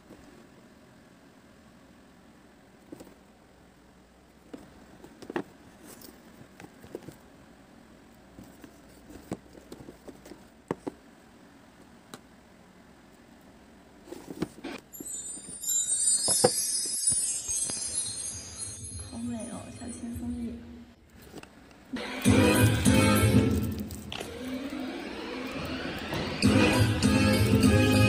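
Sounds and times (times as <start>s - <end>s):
music with bright jingling: 14.9s - 20.2s, 22.0s - 23.8s, 26.4s - 28.0s.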